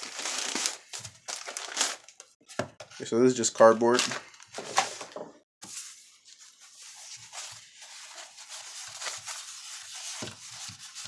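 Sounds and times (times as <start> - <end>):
foam sheet rustling and crinkling: 0.0 - 2.1, 5.6 - 11.0.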